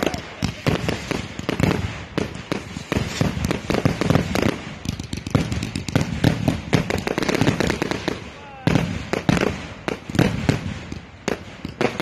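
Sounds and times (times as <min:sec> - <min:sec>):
firework bangs and crackling: 0:00.0 - 0:12.0.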